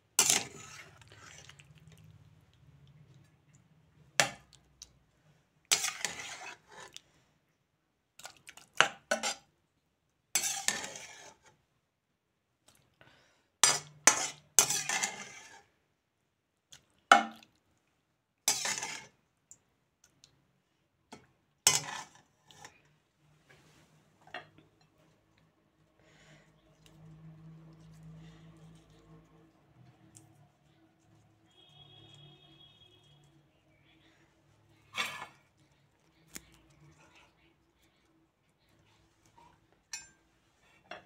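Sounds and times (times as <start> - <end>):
spatula scraping and clanking on pans: 0.1 - 1.6, 5.7 - 7.0, 8.8 - 9.5, 10.4 - 11.6, 13.6 - 15.7, 18.5 - 19.2, 21.6 - 22.9, 34.7 - 35.6, 39.2 - 41.0.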